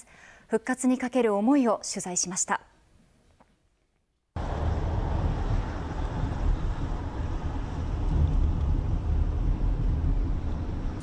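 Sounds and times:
car engine and road rumble: 0:04.4 - 0:11.0.

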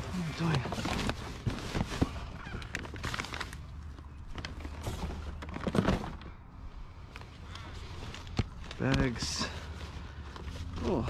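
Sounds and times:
cardboard boxes rustling: 0:00.0 - 0:03.6, 0:04.3 - 0:06.3
plastic bin bag crackling: 0:00.0 - 0:06.3.

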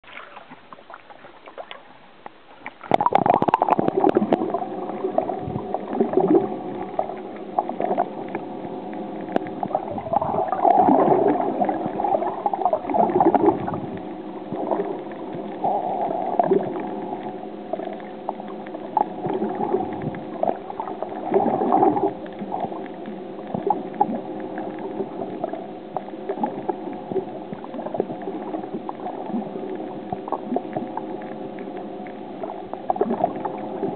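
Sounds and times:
camera dunked into water: 0:00.0 - 0:04.5
low hum: 0:00.0 - 0:33.9
underwater gurgling and sloshing: 0:00.0 - 0:33.9.

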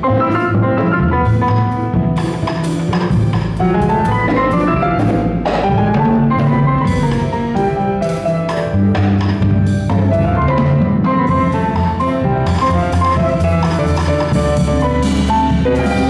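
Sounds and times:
grand piano chords and melody: 0:00.0 - 0:16.0
walking double bass: 0:00.0 - 0:16.0
drum kit on cymbals and drums: 0:01.2 - 0:16.0.

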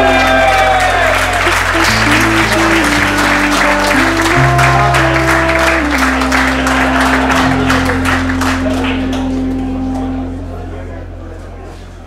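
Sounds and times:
background music chords and bass: 0:00.0 - 0:12.0.

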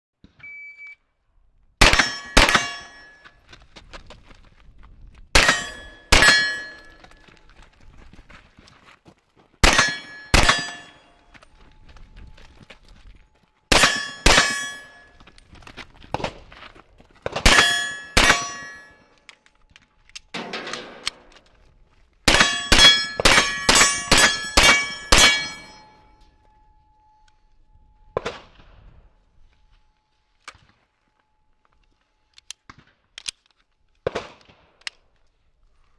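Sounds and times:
short high beep: 0:00.4 - 0:01.0
gunshots: 0:01.8 - 0:03.2, 0:05.4 - 0:07.2, 0:09.6 - 0:11.2, 0:13.7 - 0:15.1, 0:17.2 - 0:19.0, 0:22.3 - 0:25.9
steel targets ringing: 0:01.8 - 0:03.4, 0:05.4 - 0:07.4, 0:09.6 - 0:12.5, 0:13.7 - 0:15.4, 0:17.4 - 0:19.2, 0:20.3 - 0:21.3, 0:22.3 - 0:28.3.

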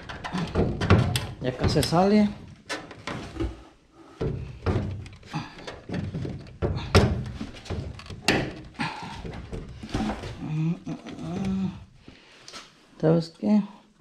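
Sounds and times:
knocks and clunks of light assembly: 0:00.0 - 0:03.6, 0:04.2 - 0:10.4.

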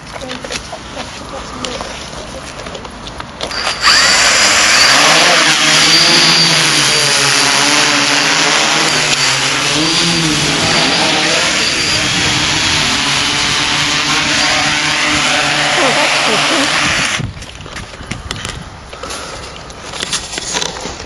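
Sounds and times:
quadcopter propellers buzzing: 0:03.5 - 0:17.4.

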